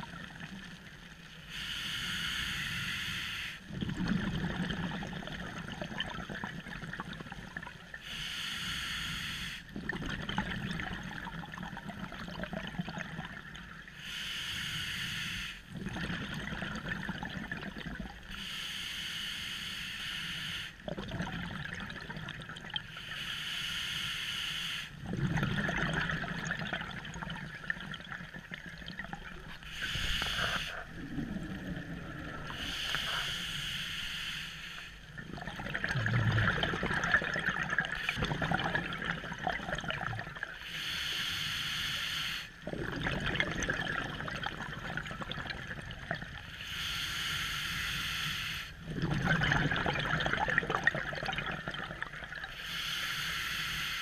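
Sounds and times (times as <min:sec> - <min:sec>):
bubbling and gurgling on exhale: 0:00.0 - 0:01.5, 0:03.6 - 0:08.2, 0:09.6 - 0:14.0, 0:15.6 - 0:18.5, 0:20.8 - 0:23.2, 0:24.9 - 0:33.7, 0:34.8 - 0:41.2, 0:42.4 - 0:47.0, 0:48.4 - 0:52.8
regulator hissing on inhale: 0:01.4 - 0:03.6, 0:08.0 - 0:09.7, 0:14.0 - 0:15.7, 0:18.3 - 0:20.8, 0:22.9 - 0:25.0, 0:29.5 - 0:30.9, 0:32.4 - 0:35.1, 0:40.6 - 0:42.6, 0:46.5 - 0:48.8, 0:52.4 - 0:54.0.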